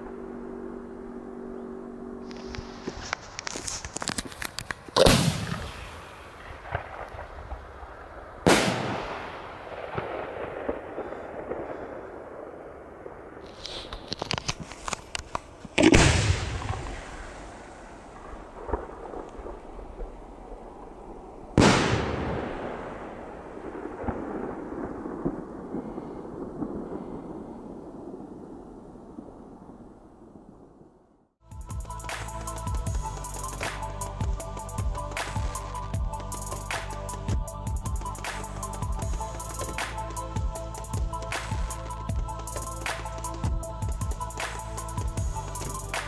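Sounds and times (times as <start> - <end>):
echoing rumble: 0.0 - 3.2, 5.0 - 13.4
crackling pops: 2.3 - 12.0, 13.4 - 17.3, 38.0 - 46.0
firework bangs: 2.3 - 14.2, 15.7 - 20.4, 21.6 - 27.2.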